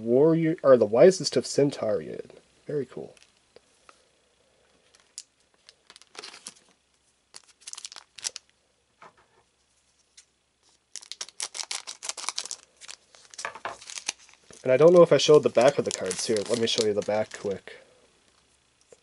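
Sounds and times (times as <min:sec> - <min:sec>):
wrapper tearing: 0:04.9 - 0:06.7, 0:07.3 - 0:08.5, 0:10.9 - 0:17.8
foil pack crinkling: 0:04.9 - 0:08.5, 0:10.8 - 0:17.8.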